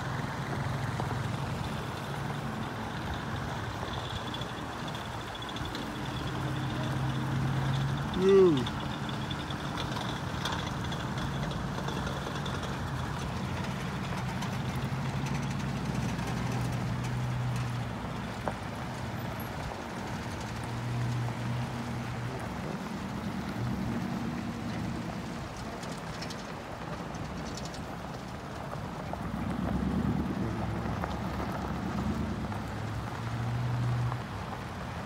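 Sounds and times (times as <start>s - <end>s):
vehicles driving past: 0.0s - 35.0s.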